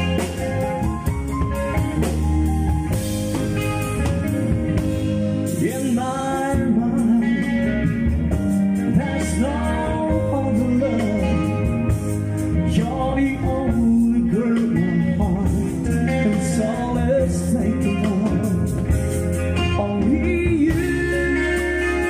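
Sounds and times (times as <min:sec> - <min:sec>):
drum kit: 0:00.0 - 0:22.0
electric bass: 0:00.0 - 0:22.0
electric guitar: 0:00.0 - 0:22.0
keyboard: 0:00.0 - 0:22.0
man singing into a microphone: 0:05.4 - 0:22.0.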